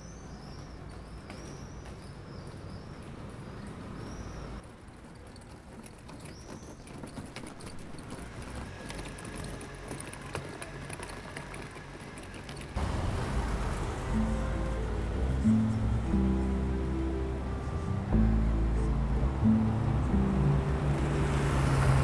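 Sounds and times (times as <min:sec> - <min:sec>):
faint traffic rumble: 0:00.0 - 0:22.0
footsteps on cobbles: 0:00.2 - 0:12.9
car passing close: 0:08.1 - 0:22.0.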